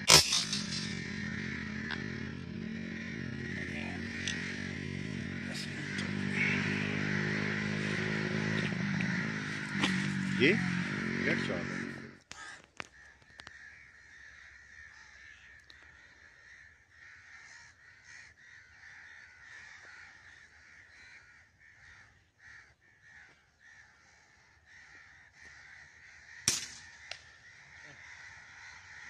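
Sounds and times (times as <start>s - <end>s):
air rifle firing: 0.0s - 1.2s, 26.5s - 26.9s
crows cawing: 0.0s - 29.0s.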